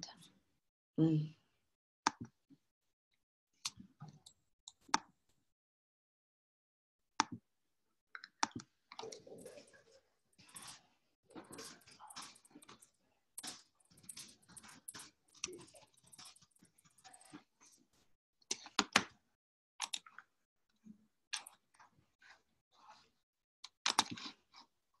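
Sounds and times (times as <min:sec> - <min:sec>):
typing on computer keyboard: 0:10.5 - 0:17.4.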